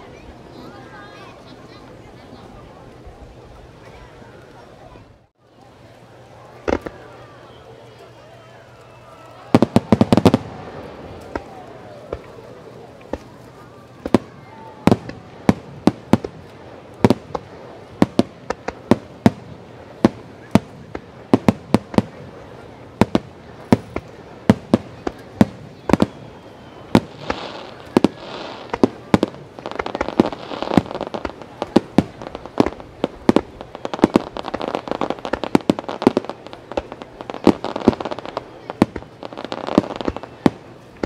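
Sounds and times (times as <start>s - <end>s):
fireworks booming: 6.6s - 7.2s, 9.4s - 41.0s.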